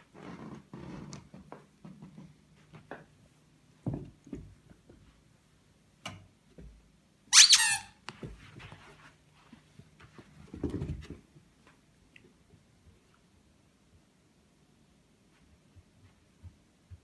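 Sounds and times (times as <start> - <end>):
squeaky toy squeak: 7.3 - 8.0.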